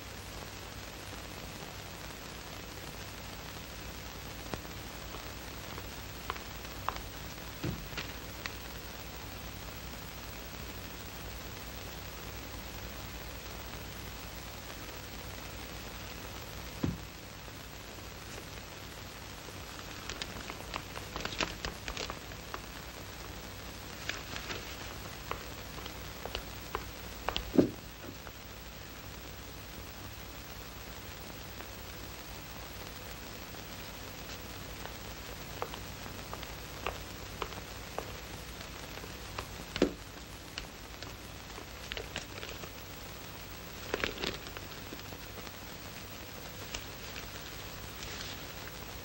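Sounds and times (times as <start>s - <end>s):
film soundtrack hiss: 0.0s - 49.0s
paper rustling and crackling: 6.2s - 8.6s, 19.6s - 22.8s, 23.9s - 28.3s, 35.5s - 42.8s, 43.6s - 45.5s, 46.6s - 49.0s
faint clicks: 19.6s - 28.3s, 33.0s - 49.0s
loud thump: 27.6s - 27.8s.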